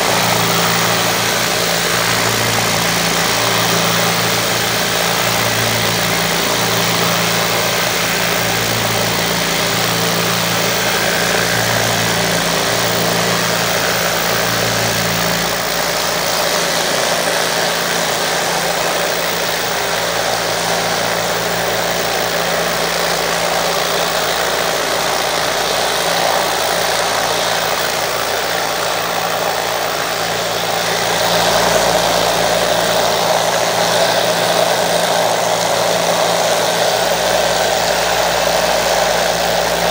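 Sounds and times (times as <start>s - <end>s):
motor hum: 0.0s - 39.9s.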